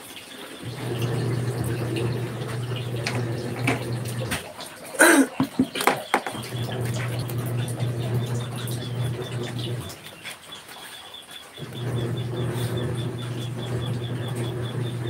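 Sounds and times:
washing machine humming: 0.0s - 15.0s
water splashing: 0.0s - 15.0s.

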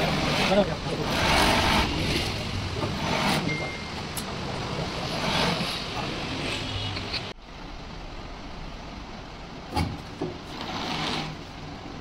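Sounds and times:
sewing machine running: 0.0s - 2.3s.

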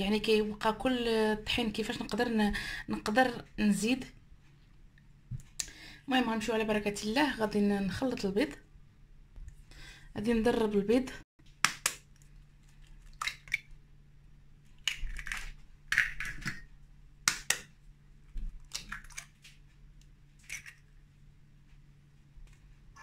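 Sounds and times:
eggs cracking into metal bowl: 13.0s - 13.7s, 14.8s - 17.7s.

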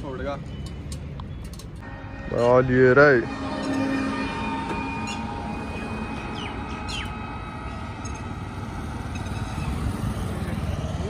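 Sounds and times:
road traffic passing: 0.0s - 11.0s
bird chirps: 6.1s - 7.4s.

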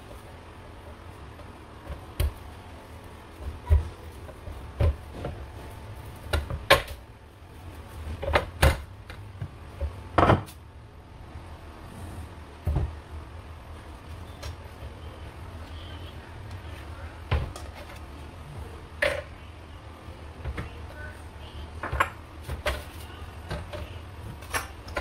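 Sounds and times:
rolling pin rolling dough: 0.0s - 10.5s.

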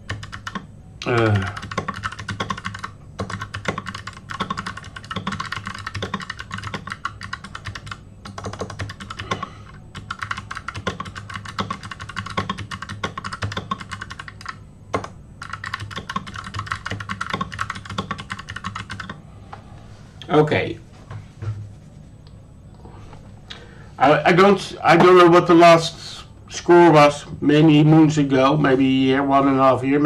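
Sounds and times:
fast typing on keyboard: 0.0s - 19.2s.

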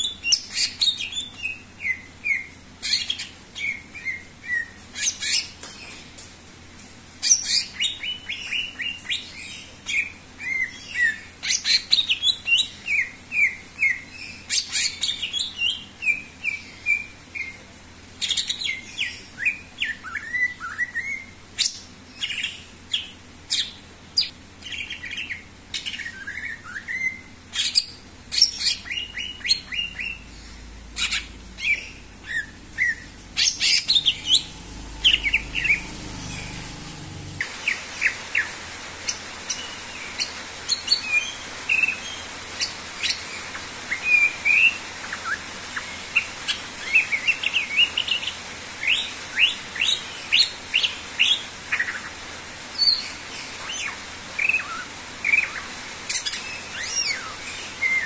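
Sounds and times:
bird singing with chirps and whistles: 18.2s - 38.5s.

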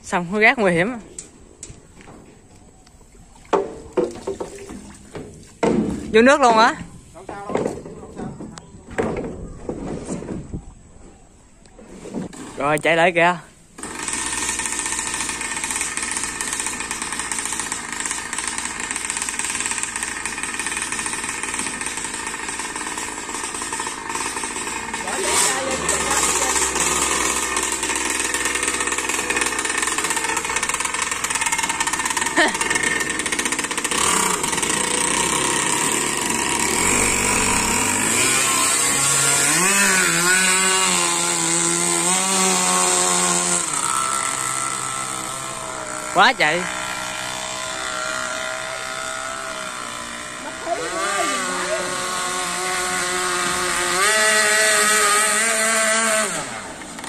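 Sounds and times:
two-stroke engine running: 13.8s - 57.0s.

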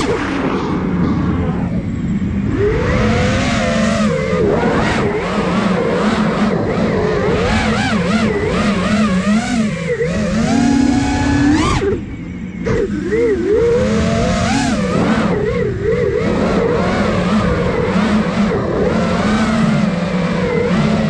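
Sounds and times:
rush of air: 0.0s - 5.5s
quadcopter motors whining: 0.0s - 21.0s.

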